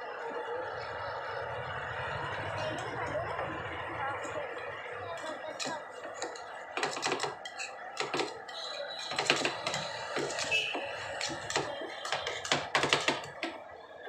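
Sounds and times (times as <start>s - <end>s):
metal spatulas clacking on steel: 5.2s - 13.5s.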